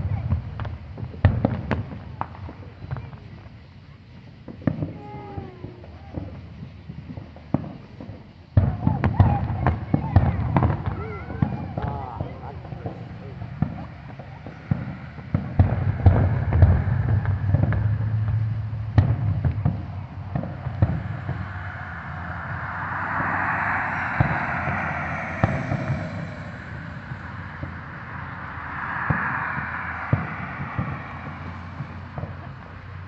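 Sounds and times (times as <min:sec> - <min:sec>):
fireworks rushing noise: 0:08.6 - 0:33.0.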